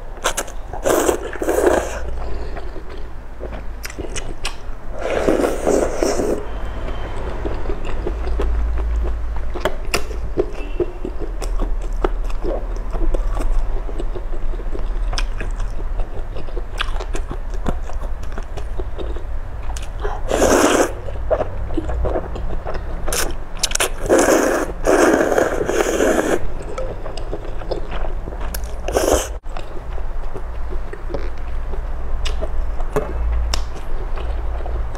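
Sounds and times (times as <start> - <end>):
chewing with wet clicks: 0.2 - 4.7, 6.8 - 25.9, 26.6 - 34.9
loud noodle slurps: 0.8 - 2.1, 5.0 - 6.4, 20.3 - 21.0, 24.0 - 26.5, 28.9 - 29.4.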